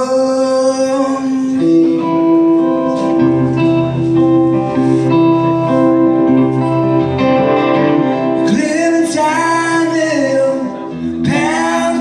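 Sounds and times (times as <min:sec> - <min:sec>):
guitar through a pa: 0:00.0 - 0:12.0.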